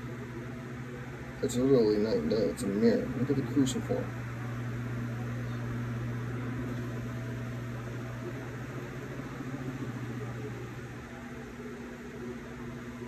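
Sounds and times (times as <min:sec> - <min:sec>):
low machine hum: 0:00.0 - 0:13.0.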